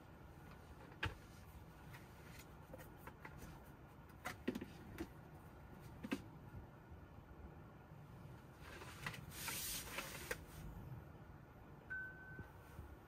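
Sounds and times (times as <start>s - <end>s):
faint low hum: 10.2s - 13.0s.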